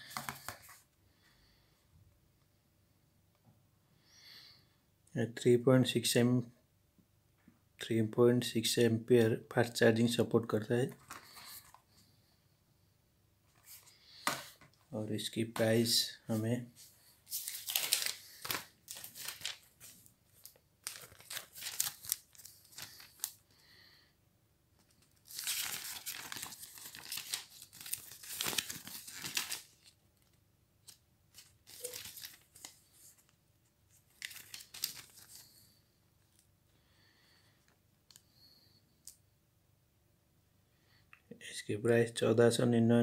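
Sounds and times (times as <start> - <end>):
paper rustling and crinkling: 0.0 - 0.8, 10.9 - 11.8, 16.8 - 23.4, 24.8 - 35.7.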